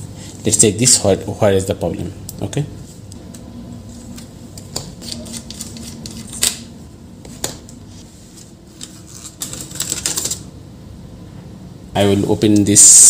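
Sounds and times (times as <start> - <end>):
laptop motherboard clicking and rattling: 9.2 - 10.5.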